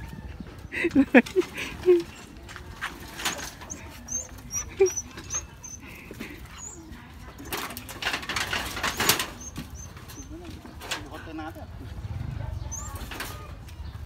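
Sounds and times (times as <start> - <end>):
rummaging through metal sheets: 7.4 - 11.3.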